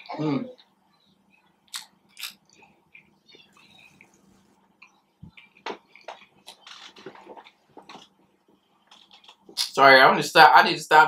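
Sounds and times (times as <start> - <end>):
chewing with wet mouth smacks: 1.7 - 8.2.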